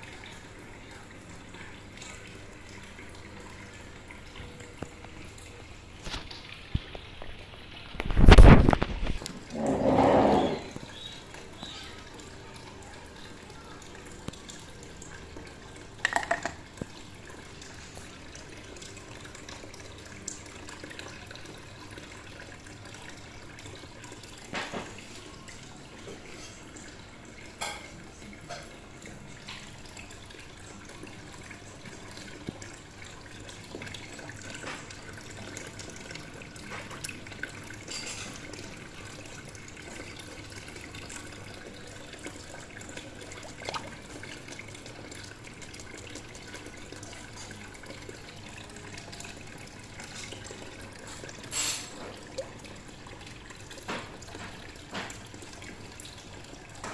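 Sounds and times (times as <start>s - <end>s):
water trickling: 0.0s - 56.9s.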